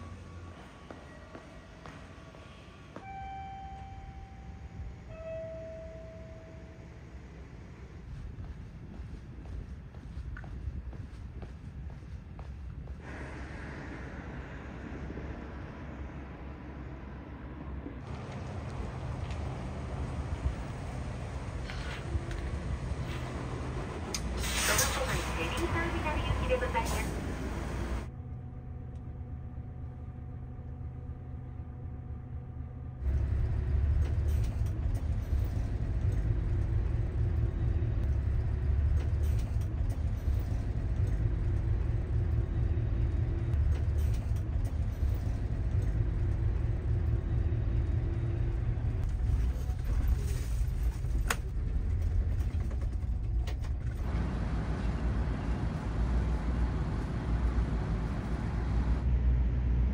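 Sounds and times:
engine and road rumble: 6.8 - 59.9
bus engine idling: 13.0 - 28.1, 33.0 - 59.1.

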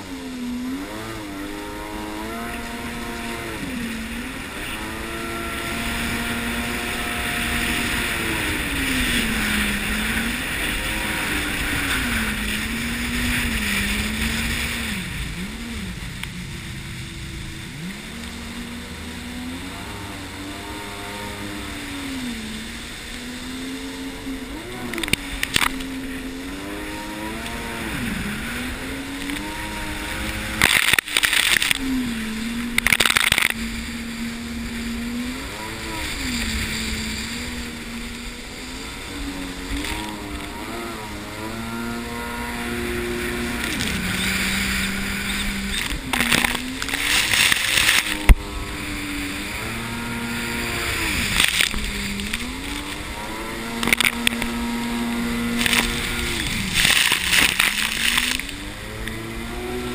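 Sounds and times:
jet ski engine: 0.0 - 59.9
sharp splashes: 17.5 - 59.6.

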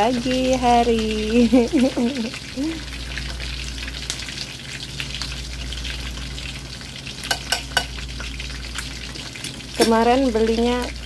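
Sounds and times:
chicken frying in hot oil: 0.0 - 11.0
metal tongs clacking against pan: 7.2 - 8.0, 8.8 - 10.2.

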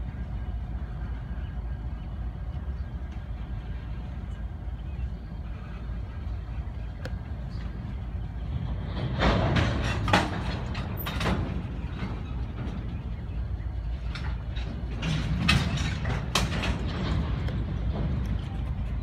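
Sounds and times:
freight train rumble: 0.0 - 19.0
metallic clanks and bangs: 8.5 - 19.0.

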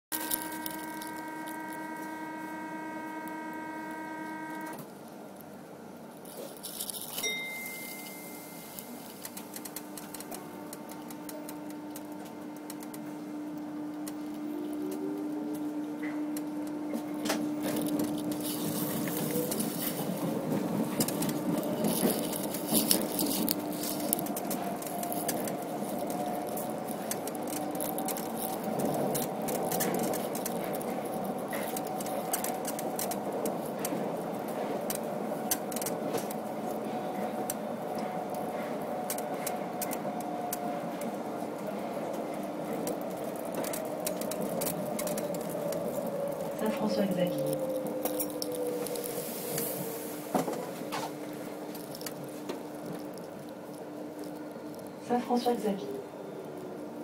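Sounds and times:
train motor whine: 0.0 - 5.3, 6.2 - 57.0
train rumbling through tunnel: 4.6 - 52.6
wheels clicking over rails: 16.3 - 57.0.

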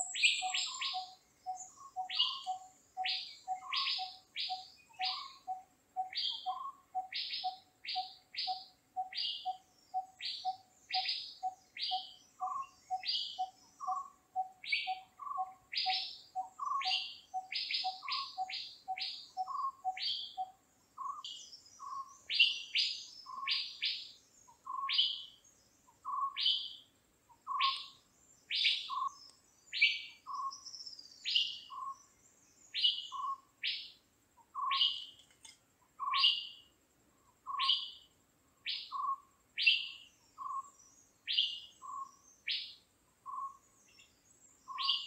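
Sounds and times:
bird calling: 0.0 - 32.1, 34.5 - 35.3, 44.7 - 45.0.

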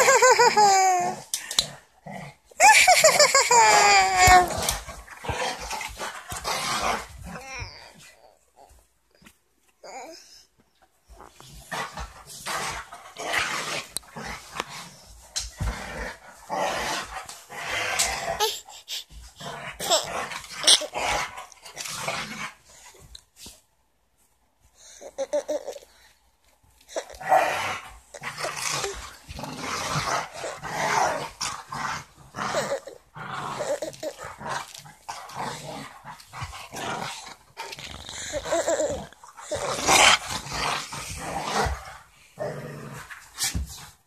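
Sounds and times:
baby laughing: 0.0 - 1.3, 2.6 - 4.7, 18.4 - 19.2, 19.8 - 21.0, 24.9 - 26.0, 32.5 - 33.0, 33.6 - 34.2, 38.2 - 39.9
dogs play-fighting and growling: 1.0 - 9.8, 10.4 - 44.0.

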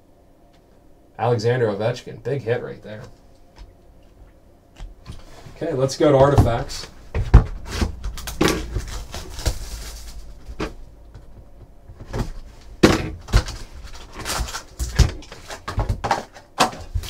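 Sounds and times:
plastic wrap rustling: 6.5 - 11.0, 12.1 - 17.0
box cutter slitting plastic wrap: 13.4 - 15.6.

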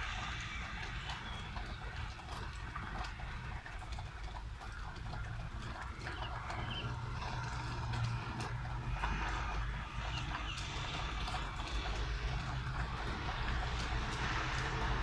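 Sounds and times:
raindrops tapping hard surfaces: 0.0 - 15.0
steady rain: 0.0 - 15.0.

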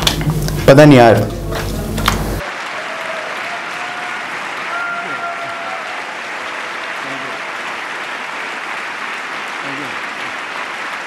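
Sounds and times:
large crowd applauding: 2.4 - 11.0.

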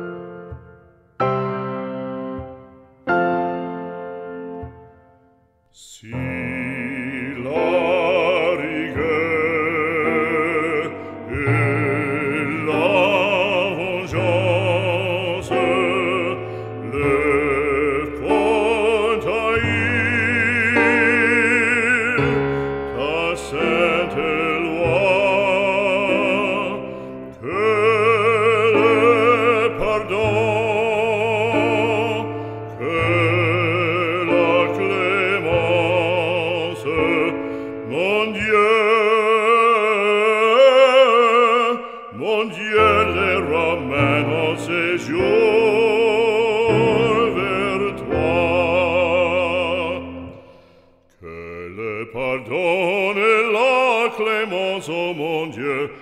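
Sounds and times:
instrumental accompaniment: 0.0 - 40.5
operatic singer with vibrato: 5.7 - 56.0.

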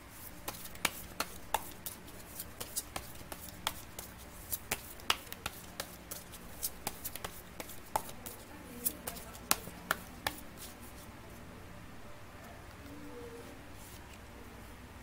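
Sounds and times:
hands clicking and tapping: 0.4 - 10.5.

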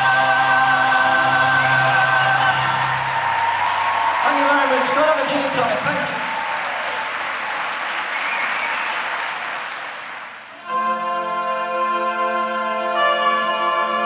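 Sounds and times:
audience applause: 0.0 - 10.6
orchestra playing held notes: 10.6 - 14.0.

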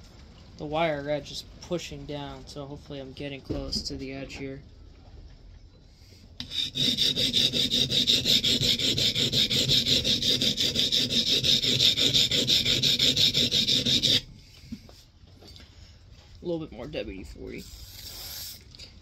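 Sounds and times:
plane iron scraping on oilstone: 6.4 - 14.2.

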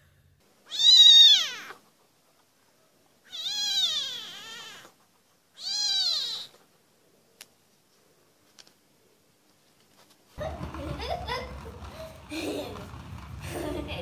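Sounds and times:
kitten meowing: 0.7 - 1.8, 3.3 - 4.9, 5.6 - 6.6.

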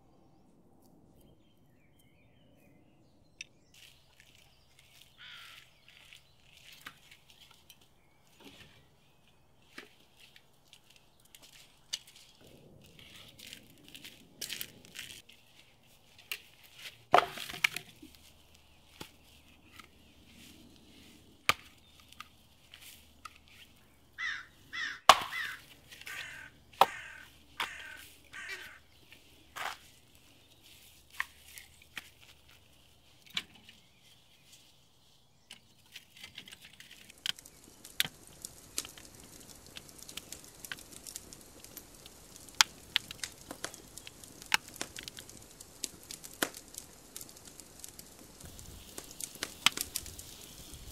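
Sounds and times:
bird calling: 3.4 - 7.5, 23.4 - 29.9
wood fire crackling: 3.6 - 50.9
wooden logs knocking: 17.1 - 18.0.

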